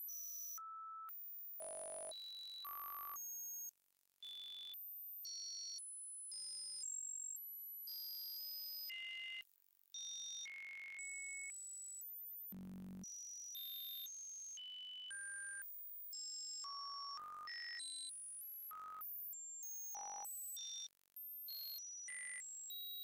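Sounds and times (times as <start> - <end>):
synthesized sine tones: 1.6 - 2.1.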